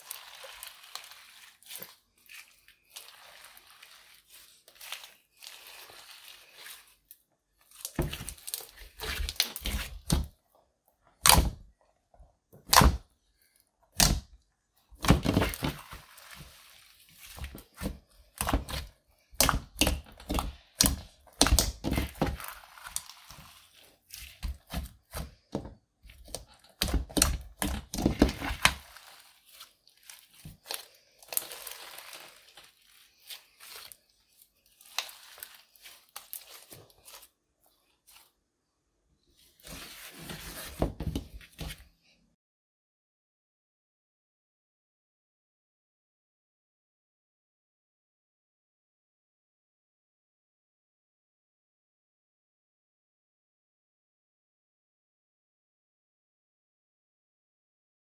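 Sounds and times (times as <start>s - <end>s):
slime crackling and popping: 15.0s - 25.3s, 26.1s - 34.0s, 34.6s - 37.3s.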